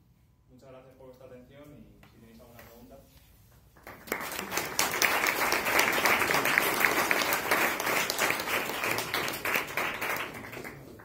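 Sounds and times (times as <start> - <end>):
audience applauding: 3.8 - 11.0.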